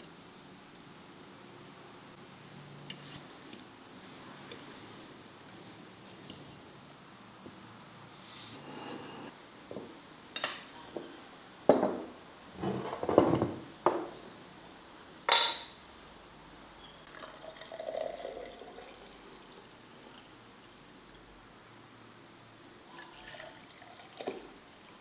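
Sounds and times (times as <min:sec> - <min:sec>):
tableware clinking and knocking: 0:15.3 - 0:15.8
drink pouring into glass: 0:17.1 - 0:20.2, 0:22.9 - 0:24.7.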